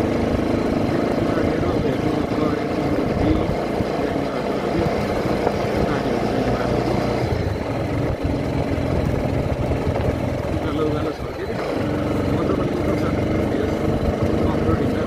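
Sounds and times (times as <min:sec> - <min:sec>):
motorcycle engine hum: 0:00.0 - 0:15.0
wind rushing on microphone: 0:01.4 - 0:06.2.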